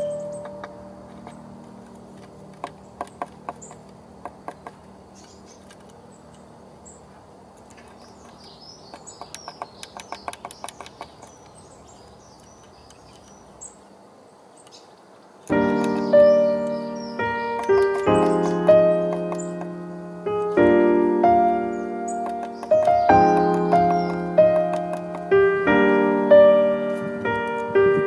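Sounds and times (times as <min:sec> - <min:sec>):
small birds chirping: 0:00.0 - 0:28.0
bird pecking on wood: 0:00.4 - 0:06.4, 0:07.5 - 0:13.5, 0:17.4 - 0:19.8, 0:22.1 - 0:25.5.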